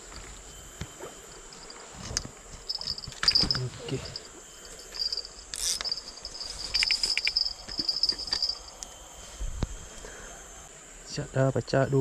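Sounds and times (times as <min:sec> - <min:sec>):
insects buzzing: 0:00.0 - 0:12.0.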